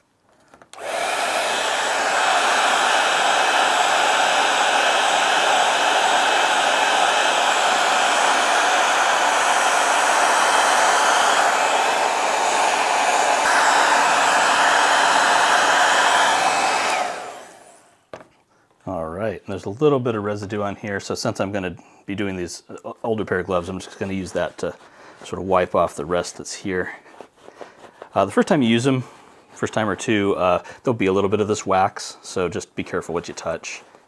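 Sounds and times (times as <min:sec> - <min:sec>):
hot-air blower running: 0:00.7 - 0:17.9.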